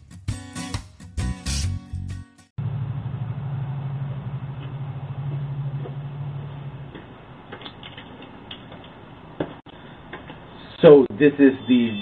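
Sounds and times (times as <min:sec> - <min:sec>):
steady low hum: 0:02.6 - 0:07.5.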